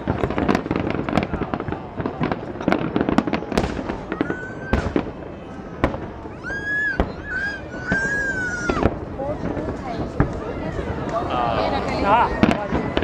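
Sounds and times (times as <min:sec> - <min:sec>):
fireworks bursting: 0:00.0 - 0:13.0
whooping cries: 0:04.1 - 0:04.8, 0:06.3 - 0:08.9.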